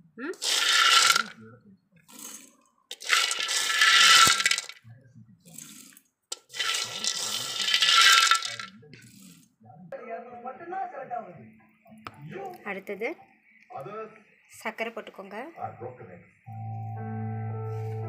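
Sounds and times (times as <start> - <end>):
peanuts rattling in metal jar: 0.4 - 1.3, 2.2 - 4.8, 6.3 - 8.7.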